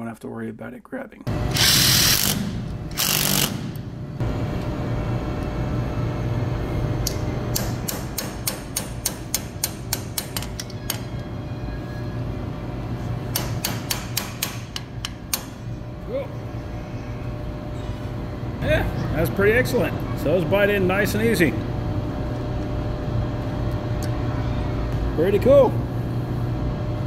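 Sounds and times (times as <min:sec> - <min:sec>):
low hum: 0:01.3 - 0:08.0
cordless drill running: 0:01.5 - 0:03.7
wrench clicking: 0:07.0 - 0:11.0.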